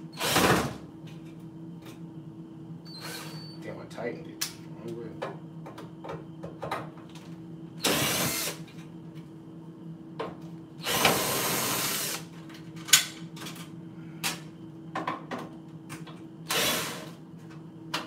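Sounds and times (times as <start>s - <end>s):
cordless drill whirring: 7.8s - 8.6s, 10.8s - 12.3s, 16.5s - 17.1s.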